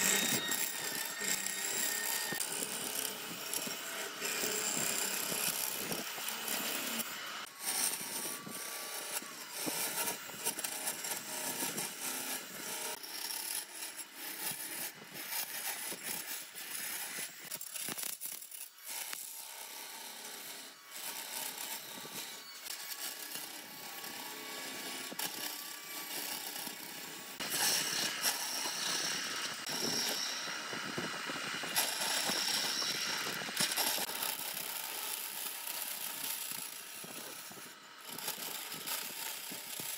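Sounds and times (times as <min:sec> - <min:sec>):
faint motor whine: 0:00.0 - 0:39.9
power tool cutting wood: 0:00.0 - 0:39.9.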